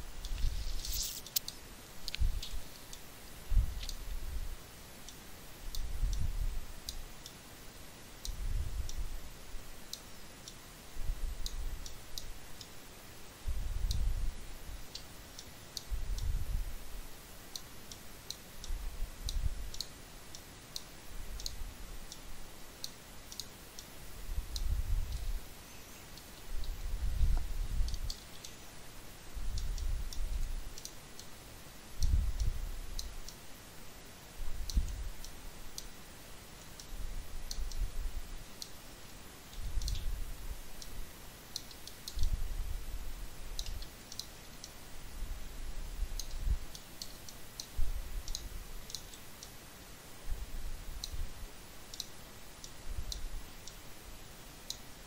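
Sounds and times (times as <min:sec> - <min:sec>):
computer mouse clicking: 0:00.2 - 0:03.0, 0:22.8 - 0:23.9, 0:29.5 - 0:31.3, 0:43.6 - 0:44.7, 0:46.2 - 0:49.6, 0:51.9 - 0:53.8.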